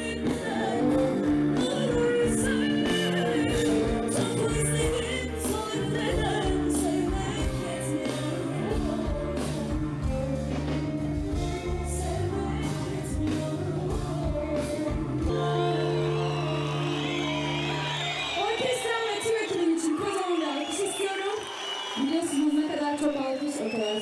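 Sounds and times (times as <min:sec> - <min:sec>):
woman singing: 0:00.0 - 0:10.1, 0:11.3 - 0:17.3
bass: 0:00.0 - 0:19.1.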